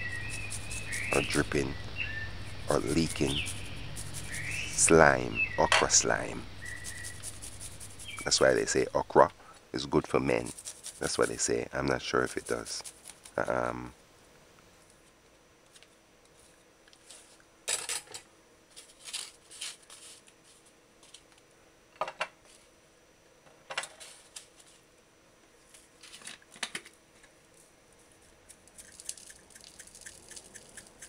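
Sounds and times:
herbs rattling from jar: 2.4 - 8.8, 28.7 - 31.0.

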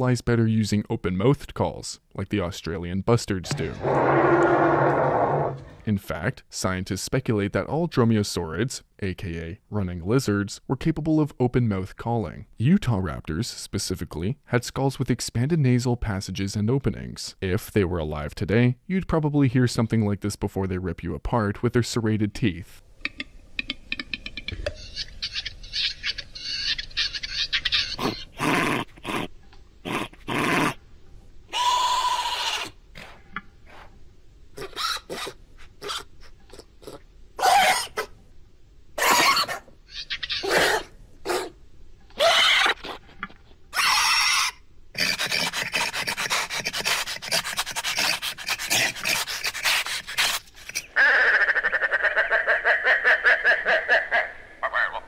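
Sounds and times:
rasping animal call: 3.5 - 5.8, 31.5 - 33.2, 34.6 - 38.1, 39.0 - 41.5, 42.2 - 43.1, 43.7 - 52.4
hoarse breathy animal calls: 3.5 - 5.9, 34.6 - 38.1, 42.2 - 51.8.

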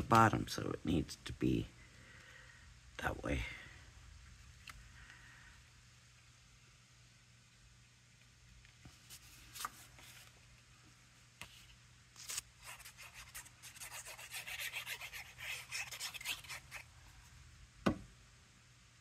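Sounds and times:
cardstock rubbing by hand: 11.4 - 16.9
single thump: 17.8 - 18.1.

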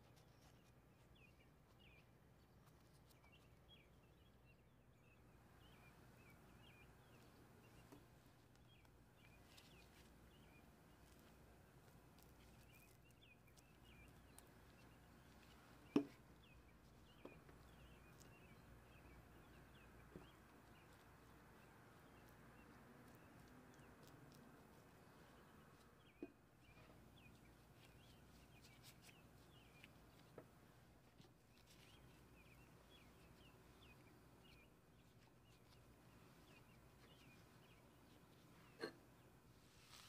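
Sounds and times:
faint bird chirps: 0.0 - 40.0
faint taps: 15.8 - 16.2.

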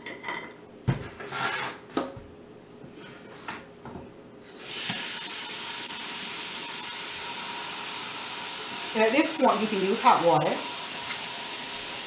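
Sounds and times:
water running into metal pot: 4.6 - 12.0.

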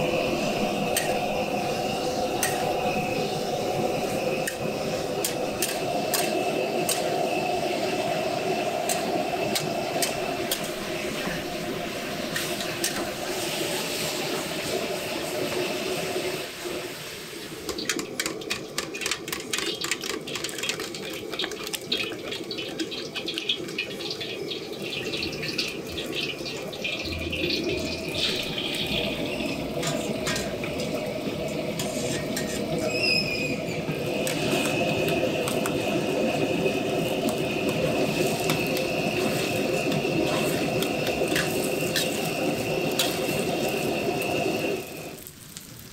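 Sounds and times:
egg sizzling in hot oil: 0.0 - 45.9
metal spatula stirring in steel pan: 4.4 - 7.1, 8.9 - 10.8, 31.8 - 32.8, 37.8 - 43.8
eggs beaten in steel bowl: 17.8 - 23.4, 36.4 - 43.4.

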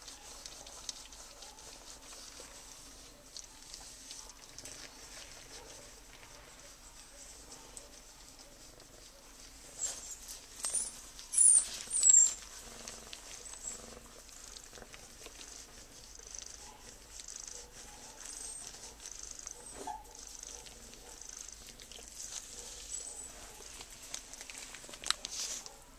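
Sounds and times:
cat purring: 0.0 - 25.8
high-pitched squeaks: 10.0 - 12.4.

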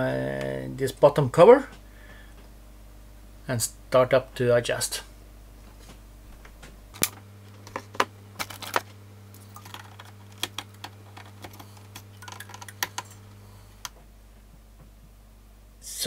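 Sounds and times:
steady low hum: 0.0 - 16.0
hands clicking and tapping metal: 9.6 - 13.2.

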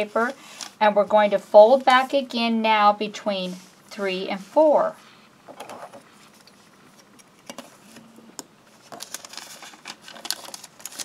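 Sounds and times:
paper crinkling and rustling: 8.7 - 11.0.

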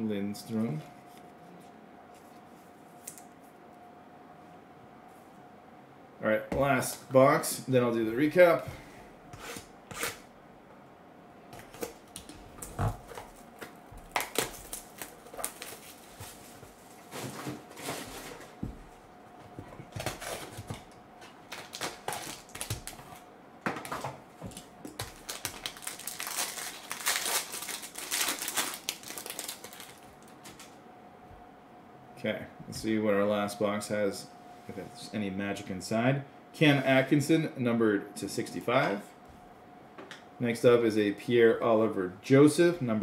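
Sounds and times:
wrapper crinkling and tearing: 11.6 - 16.5, 21.4 - 23.2, 23.8 - 30.8.

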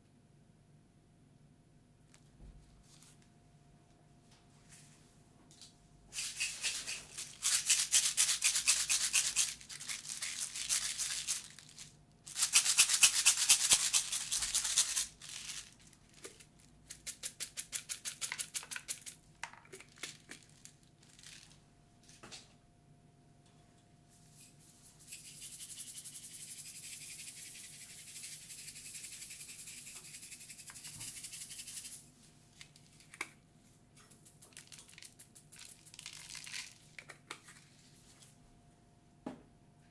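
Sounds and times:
sprinkles rattling in plastic jar: 6.2 - 21.6, 25.0 - 32.0, 34.2 - 37.1.

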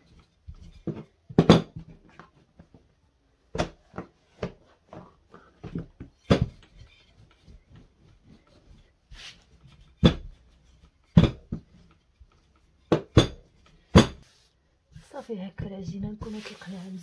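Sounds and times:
rolling pin rubbing on dough: 6.7 - 12.8, 14.2 - 17.0
rolling pin knocks: 11.1 - 12.0, 12.8 - 14.2.

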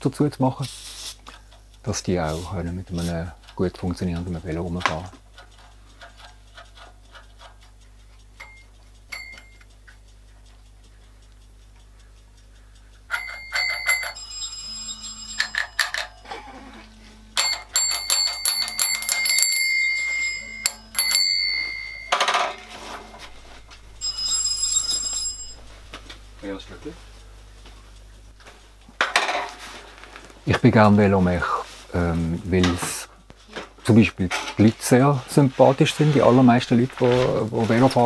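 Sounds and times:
bicycle bell ringing: 8.4 - 9.6, 13.1 - 16.4, 17.4 - 25.8
bell mechanism clicks: 8.4 - 9.7, 13.1 - 16.4, 17.4 - 25.9.

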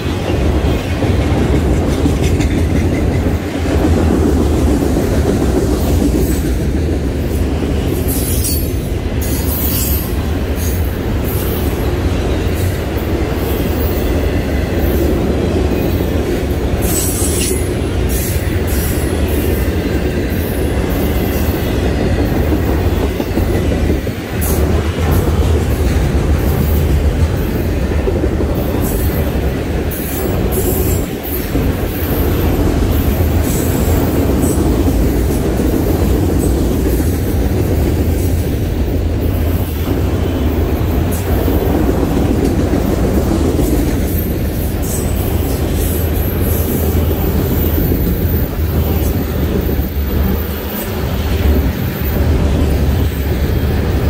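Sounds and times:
train wheels rumbling on rail: 0.0 - 54.0
wheel squeals and clacks: 8.1 - 11.7, 16.8 - 19.0.

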